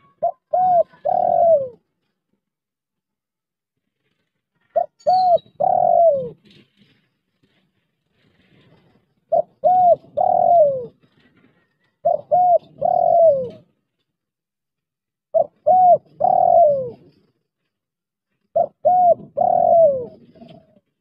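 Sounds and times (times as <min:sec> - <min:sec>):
dove cooing: 0:00.0 - 0:01.8, 0:04.8 - 0:06.5, 0:09.3 - 0:11.0, 0:12.0 - 0:13.7, 0:15.3 - 0:17.2, 0:18.5 - 0:20.8.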